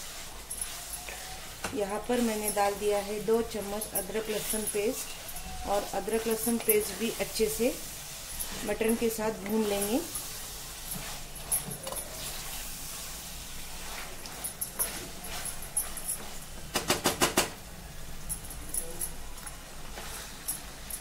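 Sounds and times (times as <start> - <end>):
wooden spatula scraping: 0.0 - 10.2
meat sizzling in oil: 0.0 - 16.6.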